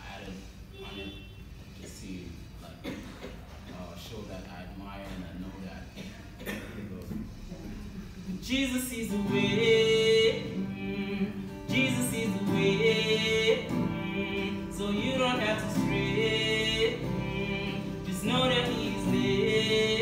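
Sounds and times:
man singing gospel song: 8.4 - 20.0
guitar chords: 9.0 - 20.0.

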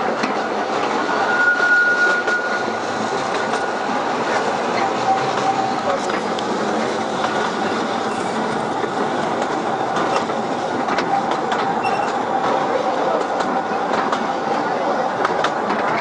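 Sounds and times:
train wheels rattling on rails: 0.0 - 16.0
thin wheel squeal: 11.8 - 12.2.

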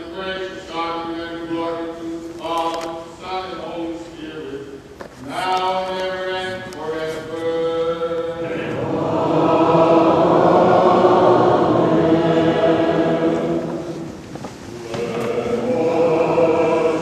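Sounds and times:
congregation singing unaccompanied: 5.4 - 17.0.

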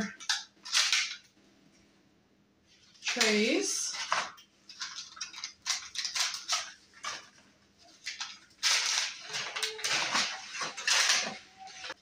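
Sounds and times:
plastic seedling trays crinkling: 2.8 - 12.0.

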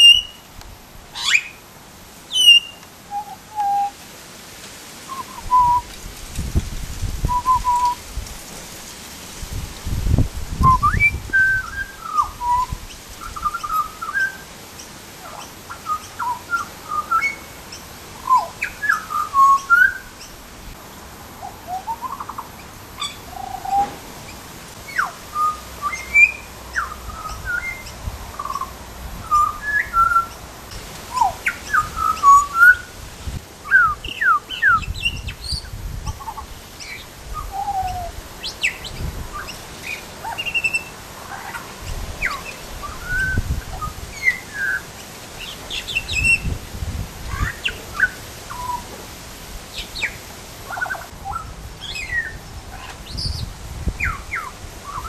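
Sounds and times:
bird whistling notes: 0.0 - 0.5, 2.3 - 4.0, 5.1 - 5.9, 7.2 - 8.0, 10.6 - 14.4, 15.3 - 17.6, 18.2 - 20.2, 24.9 - 30.4, 31.1 - 32.9, 33.6 - 41.6, 42.2 - 46.5.

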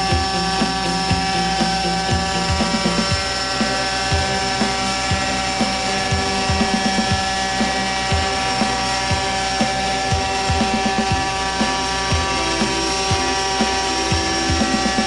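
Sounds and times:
model helicopter whining: 0.0 - 15.0.

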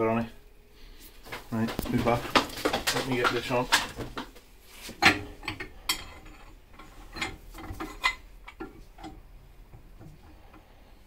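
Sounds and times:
metal tools clinking and knocking: 5.0 - 9.2.

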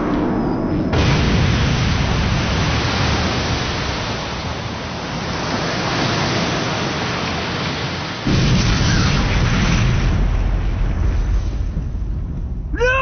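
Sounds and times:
heavy low boom: 0.0 - 3.8
rushing water roar: 0.9 - 13.0.

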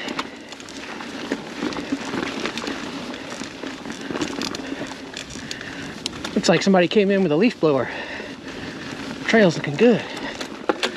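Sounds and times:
bike rattles and clicks: 0.0 - 10.9
tyres crackling over dry leaves: 0.0 - 10.9.

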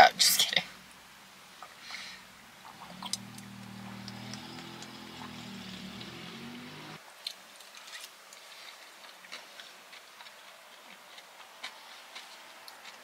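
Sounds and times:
chewing: 2.6 - 6.1, 7.2 - 13.0.

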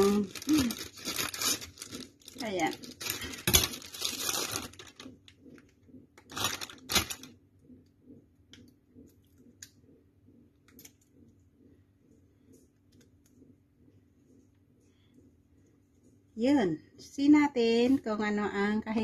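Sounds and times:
plastic wrapping crinkling: 0.0 - 5.4, 6.2 - 7.4.

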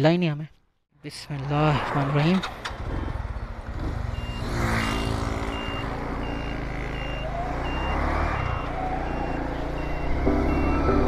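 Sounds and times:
motorcycle engine idling and revving: 1.7 - 11.0.

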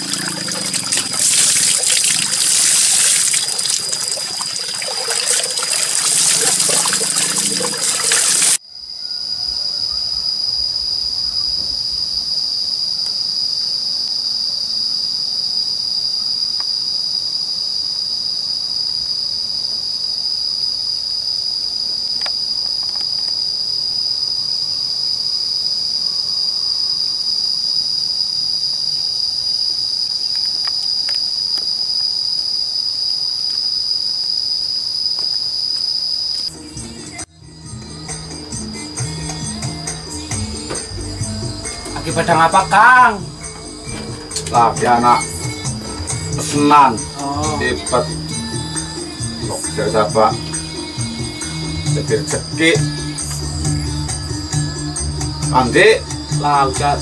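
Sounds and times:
water splashing onto ground: 0.0 - 8.6
high-pitched insect chorus: 0.0 - 57.0.

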